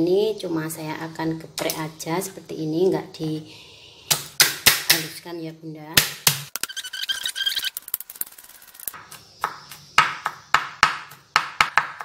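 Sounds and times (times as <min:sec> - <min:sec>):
knife chopping on wooden board: 0:09.0 - 0:12.0.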